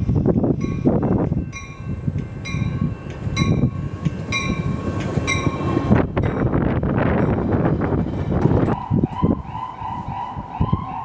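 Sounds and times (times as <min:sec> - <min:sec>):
train bell ringing: 0:00.0 - 0:07.6
train wheels rumbling: 0:00.0 - 0:11.0.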